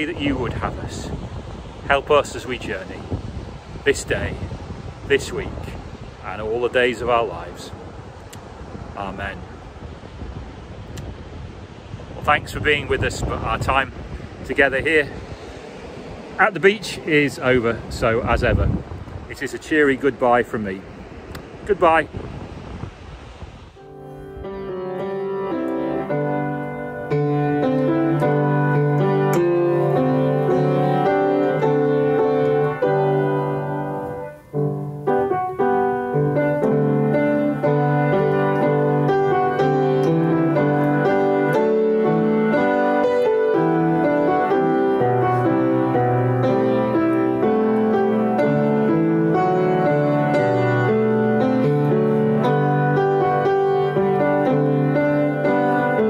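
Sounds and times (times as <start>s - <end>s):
piano music: 23.8s - 56.0s.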